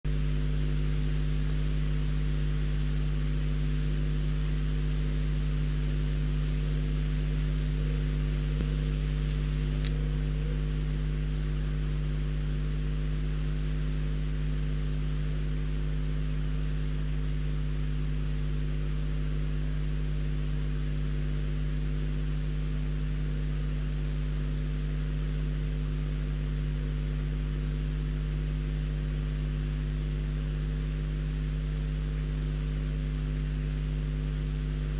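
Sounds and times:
thin high whine: 0.1 - 16.8
electrical hum and hiss: 0.1 - 34.9.

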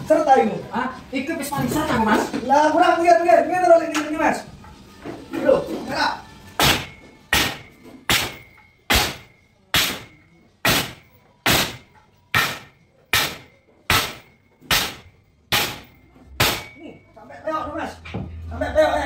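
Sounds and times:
wooden beam striking metal: 6.6 - 17.0
metallic ring: 6.6 - 17.5.

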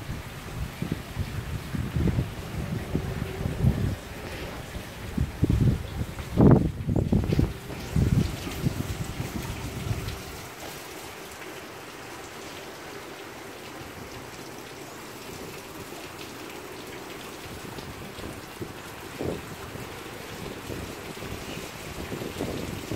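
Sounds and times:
wind buffeting microphone: 0.0 - 10.6, 17.4 - 22.9
steady rain: 0.0 - 22.9.

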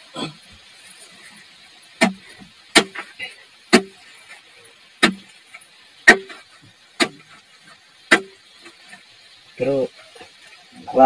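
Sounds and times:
hand tool striking rock: 2.0 - 4.0, 5.0 - 5.3, 6.0 - 6.4, 7.0 - 7.4, 8.1 - 8.4.

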